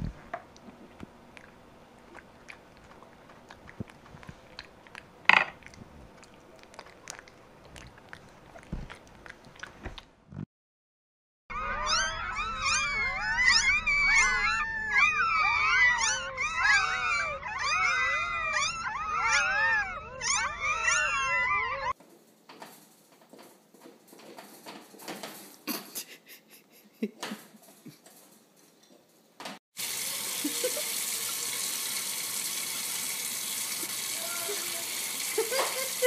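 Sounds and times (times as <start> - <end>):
soft clicking and chewing: 0.5 - 10.1
puppies squeaking and whining: 11.5 - 22.0.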